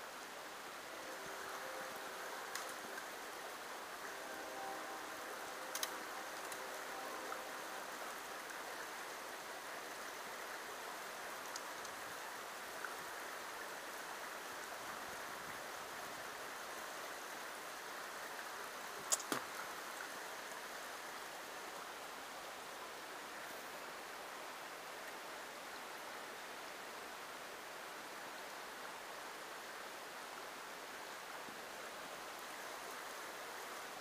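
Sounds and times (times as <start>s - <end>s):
creek running over rocks: 0.0s - 34.0s
sharp clicks: 19.1s - 19.4s.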